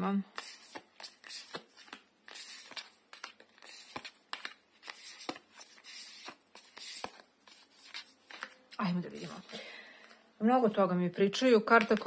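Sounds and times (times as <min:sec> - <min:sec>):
cards shuffling and flicking: 0:00.3 - 0:09.5.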